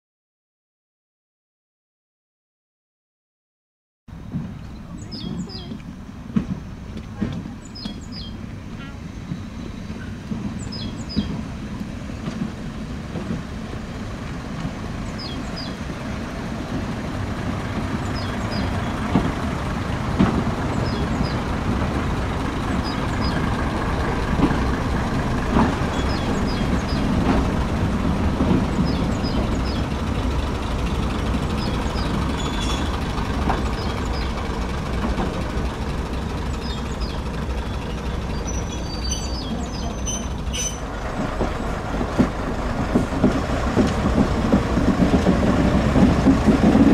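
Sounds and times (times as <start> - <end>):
diesel train engine rumbling: 4.1 - 46.9
train wheels knocking: 4.3 - 46.9
birds chirping: 4.6 - 5.8, 6.4 - 11.4, 15.0 - 16.4, 17.9 - 19.2, 20.2 - 21.8, 22.7 - 23.7, 24.4 - 27.7, 28.4 - 30.3, 31.1 - 35.4, 36.3 - 42.0.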